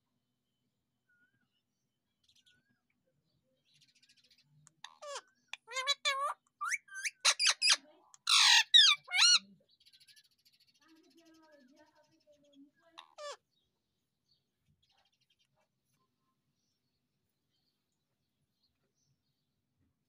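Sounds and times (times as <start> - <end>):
parakeet harsh squawk: 4.8 - 9.5, 13.0 - 13.4
parakeet whistled calls: 5.7 - 9.4.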